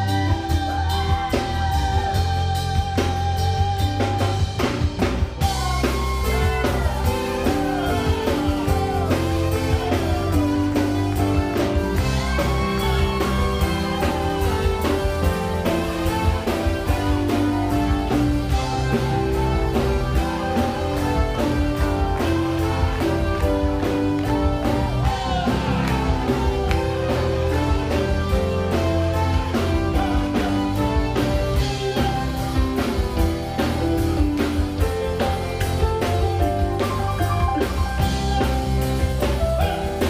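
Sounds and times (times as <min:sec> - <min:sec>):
live band playing: 0:00.0 - 0:40.0.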